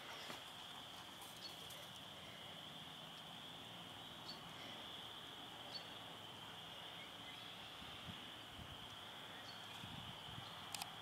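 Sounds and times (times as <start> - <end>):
faint chirps: 0.0 - 11.0
faint high-pitched hiss: 0.0 - 11.0.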